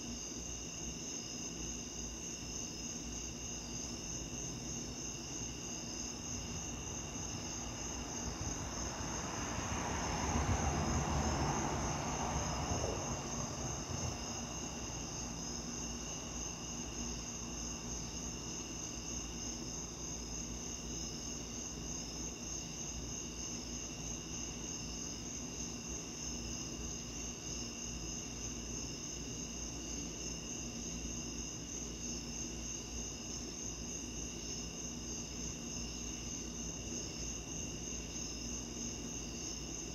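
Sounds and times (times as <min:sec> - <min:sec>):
crickets chirping: 0:00.0 - 0:39.9.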